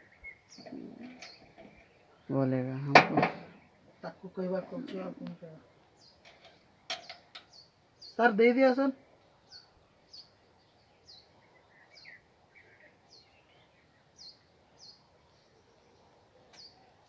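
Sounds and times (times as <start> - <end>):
quiet background hiss: 0.0 - 17.0
small bird chirping faintly: 3.4 - 17.0.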